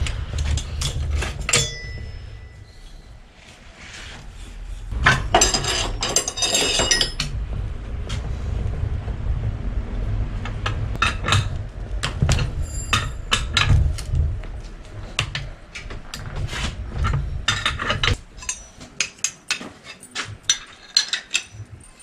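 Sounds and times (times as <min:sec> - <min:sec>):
low rumble: 0:00.0 - 0:18.6
metal tools clinking: 0:00.8 - 0:03.0, 0:05.1 - 0:07.3, 0:17.5 - 0:22.0.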